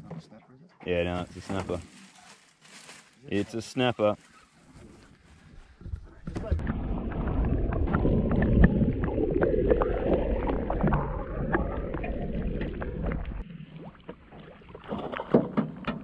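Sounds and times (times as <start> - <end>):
muffled underwater rushing: 5.6 - 15.4
dense underwater crackling: 5.7 - 14.9.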